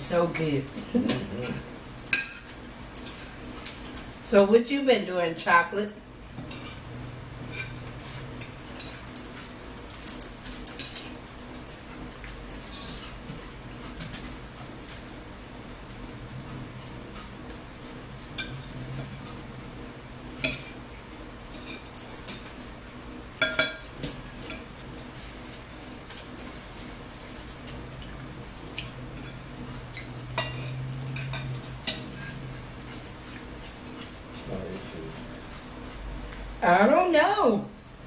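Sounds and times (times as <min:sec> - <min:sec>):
low steady hum: 0:00.0 - 0:38.0
forks clinking on plates: 0:00.9 - 0:04.5, 0:05.8 - 0:15.4, 0:18.2 - 0:19.4, 0:20.4 - 0:25.0, 0:25.7 - 0:35.2.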